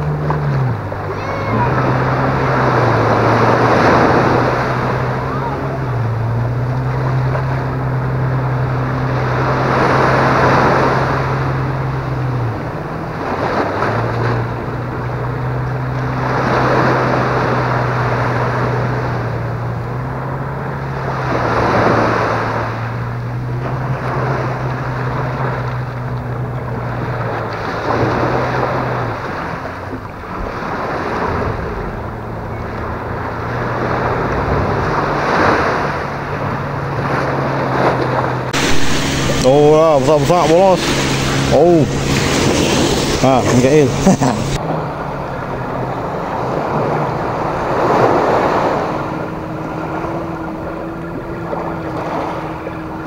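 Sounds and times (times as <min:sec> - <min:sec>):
boat engine drone: 0:00.0 - 0:53.0
small surf breaking on sand: 0:27.1 - 0:44.6.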